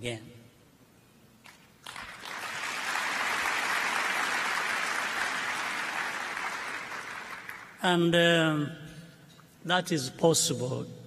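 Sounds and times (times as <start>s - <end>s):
large audience applauding: 1.5s - 7.8s.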